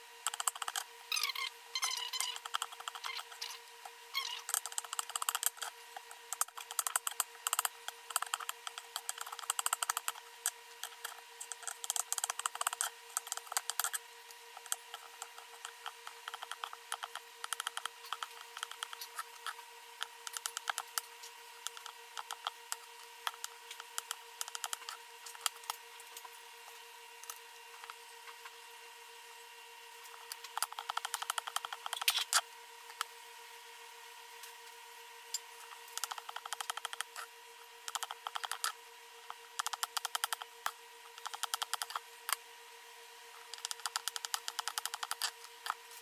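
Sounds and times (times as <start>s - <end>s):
faint steady hum: 0.0s - 46.0s.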